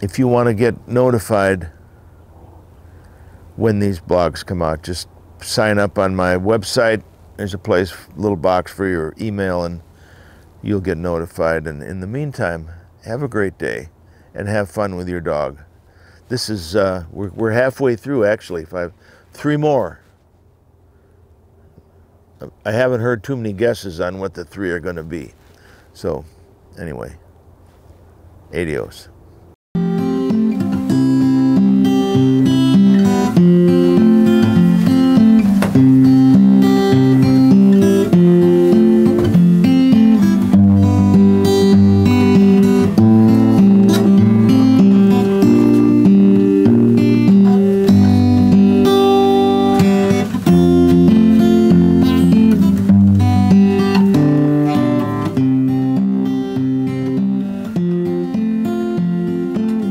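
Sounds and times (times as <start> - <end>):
acoustic guitar playing: 0.0 - 15.4, 29.8 - 59.9.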